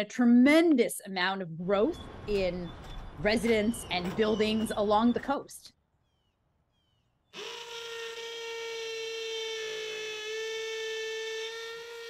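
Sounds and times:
cordless drill whining: 7.3s - 12.0s.

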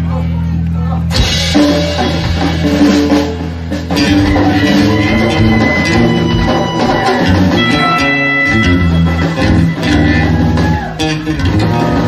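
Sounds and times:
live rock band playing: 1.0s - 12.0s
electric guitar melody: 1.1s - 12.0s.

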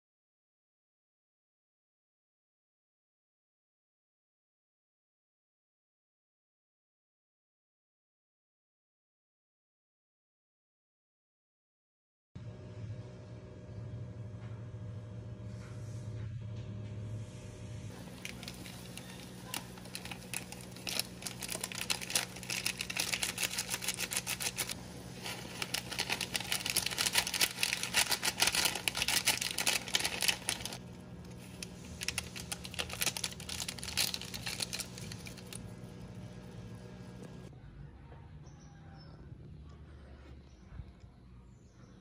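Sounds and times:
steady low hum: 12.4s - 38.4s.

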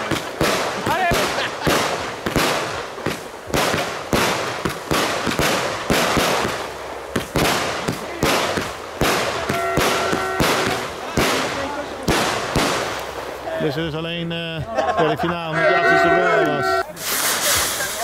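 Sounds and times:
firework shells bursting: 0.0s - 13.5s
steady hiss: 0.0s - 14.6s, 16.4s - 18.0s.

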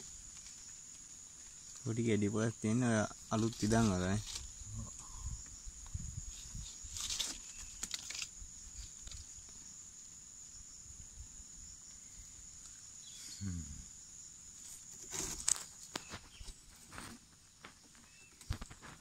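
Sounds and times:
high-pitched insect drone: 0.0s - 16.4s
rustling and clicking: 6.9s - 9.6s, 14.7s - 19.0s.

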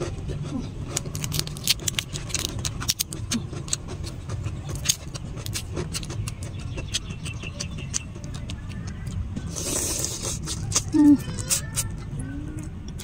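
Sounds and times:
chewing: 0.0s - 13.0s
shrimp shell crackling as peeled: 0.9s - 8.6s.

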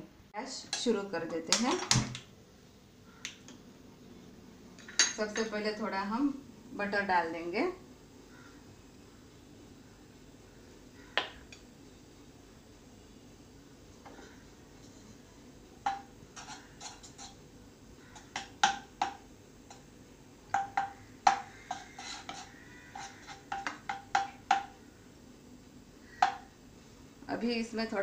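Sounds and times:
wooden spatula knocking on pan: 15.8s - 16.1s, 18.2s - 19.2s, 20.5s - 22.4s, 23.0s - 24.8s, 26.2s - 26.5s.

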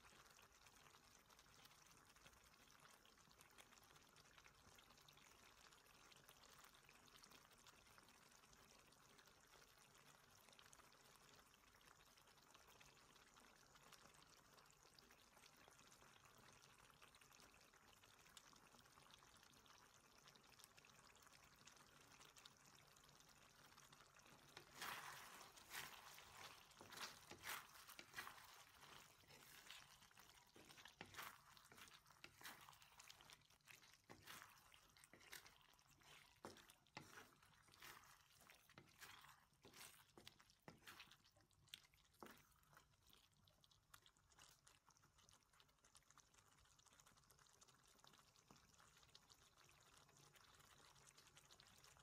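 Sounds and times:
sauce bubbling: 0.0s - 52.0s
spatula scraping a wok: 24.5s - 33.3s.

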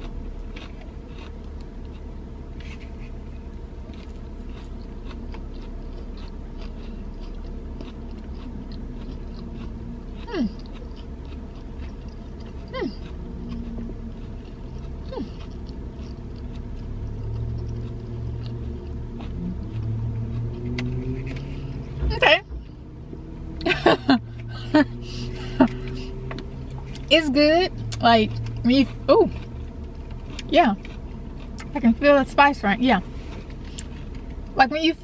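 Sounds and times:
person chewing: 0.0s - 27.2s, 27.8s - 32.0s, 33.0s - 34.5s
car interior hum: 0.0s - 35.0s.

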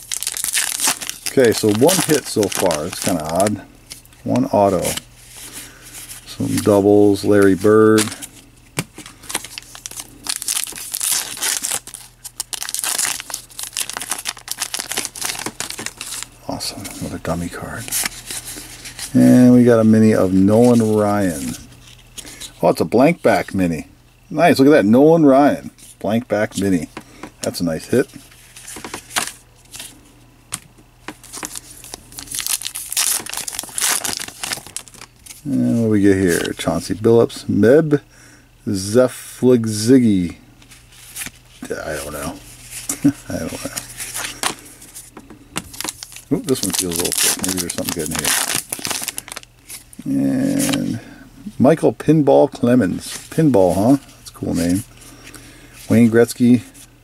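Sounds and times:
card pack wrapper tearing and crinkling: 0.0s - 5.0s, 9.2s - 16.3s, 31.1s - 36.5s, 41.1s - 44.6s, 45.6s - 50.9s.

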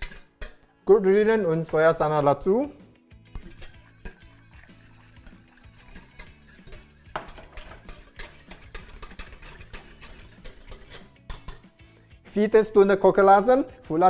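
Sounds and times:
whisk clinking and scraping pot: 0.0s - 0.6s, 3.3s - 11.8s.

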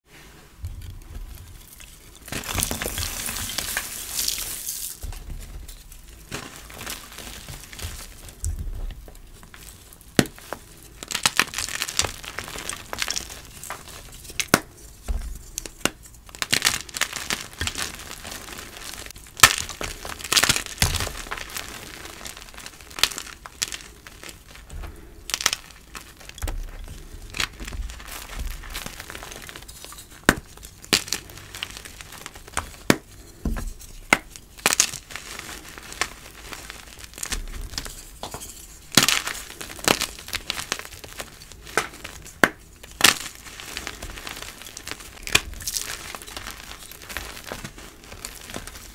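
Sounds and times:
chalk blocks crunching: 0.4s - 48.9s
chalk blocks snapping: 36.0s - 48.9s.

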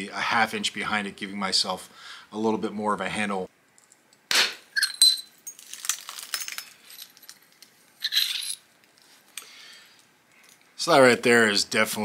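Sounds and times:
stone flakes clinking: 4.8s - 8.6s.

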